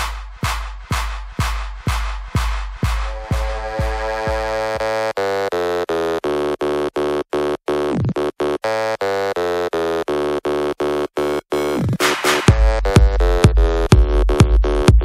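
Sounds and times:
synth chord stabs: 2.9 - 5.2.

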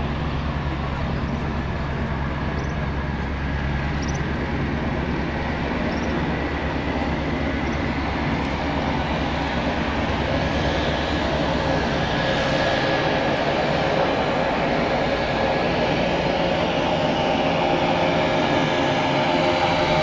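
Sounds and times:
turboprop engine and propeller running: 0.0 - 20.0.

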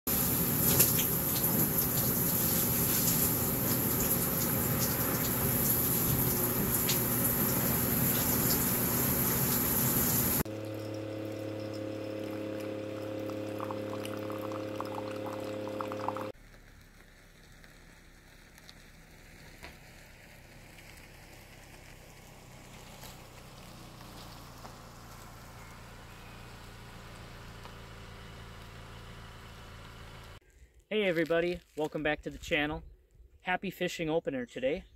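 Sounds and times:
shower running: 0.1 - 10.5
multi-tone motor hum: 0.2 - 16.4, 22.7 - 30.4
vehicle driving slowly: 0.2 - 30.4.

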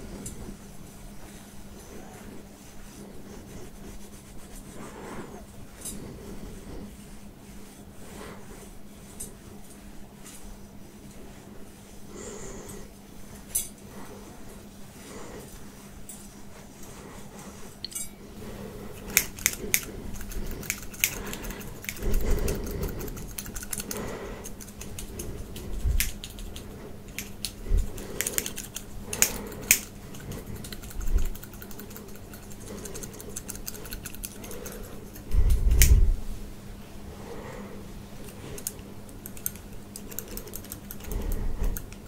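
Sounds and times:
clicks and scratching of small objects: 18.9 - 36.0, 38.2 - 42.0.

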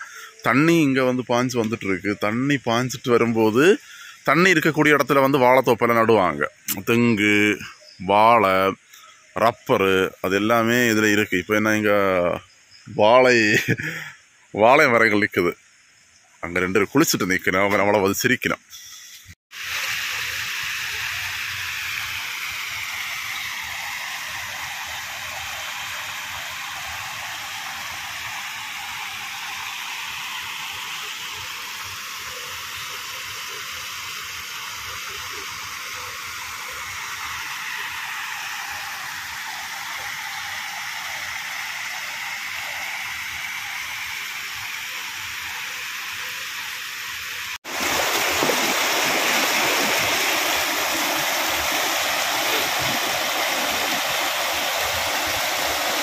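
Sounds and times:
water rushing along channel: 19.5 - 56.0.

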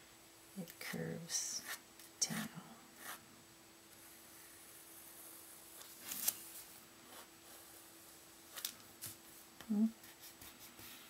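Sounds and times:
pencil scratching on paper: 1.6 - 3.2.

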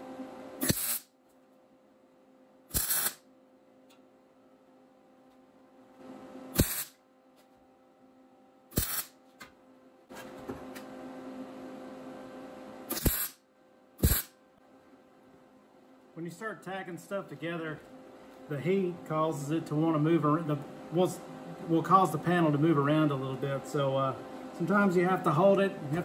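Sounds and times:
steady low hum: 0.0 - 26.0
welder crackling bursts: 0.6 - 1.1, 2.7 - 3.2, 6.5 - 7.0, 8.7 - 9.2, 12.9 - 13.4, 14.0 - 14.3.

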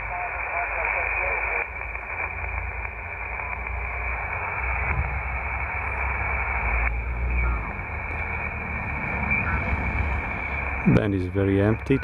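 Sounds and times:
radio receiver hiss: 0.0 - 12.0
low rumble: 1.7 - 11.1.

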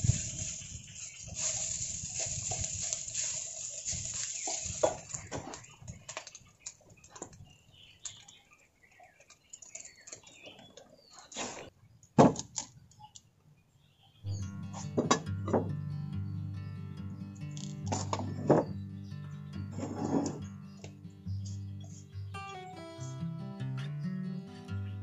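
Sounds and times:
food sizzling in a pan: 0.0 - 5.3
utensil scraping a pan: 19.7 - 20.5.

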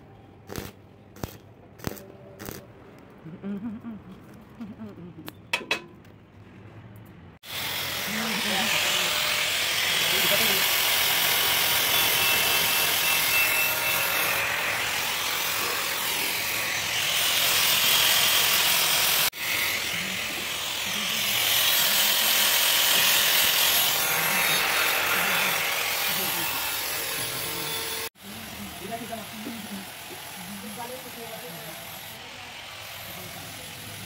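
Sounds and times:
angle grinder grinding metal: 7.4 - 34.0.

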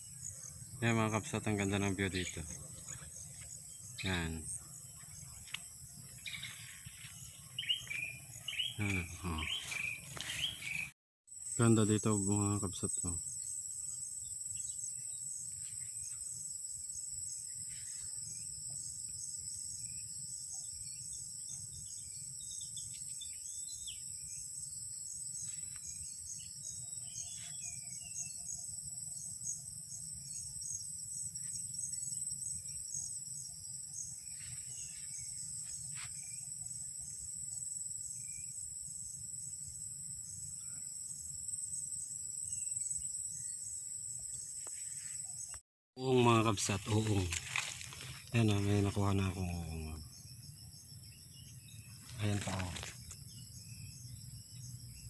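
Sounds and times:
insect chorus shrilling: 0.0 - 55.0.

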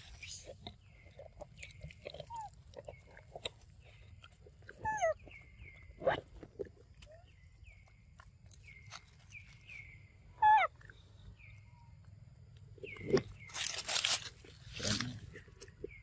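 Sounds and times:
macaque calls: 10.4 - 10.8.

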